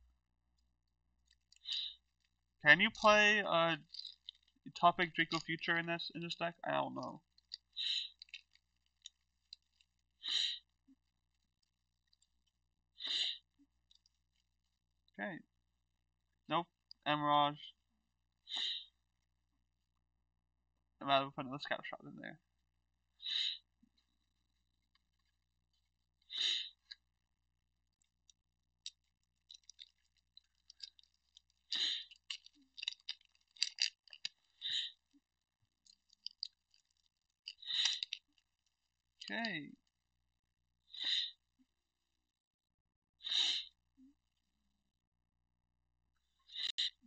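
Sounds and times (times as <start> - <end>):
person sniffling: 13.0 - 13.4, 41.0 - 41.4, 43.3 - 43.7.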